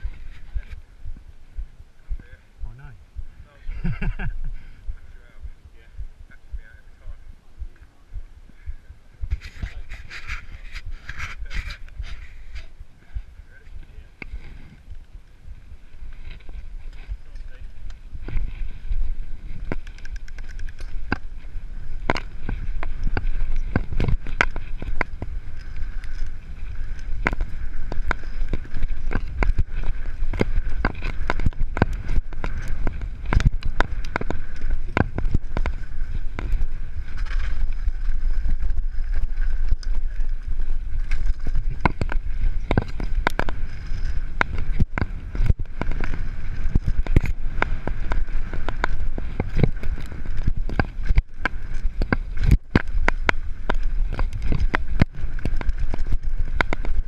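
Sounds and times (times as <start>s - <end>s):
bike tyres rumbling on dirt: 0.0s - 57.0s
wind on microphone: 0.0s - 57.0s
bike clattering over bumps: 16.1s - 57.0s.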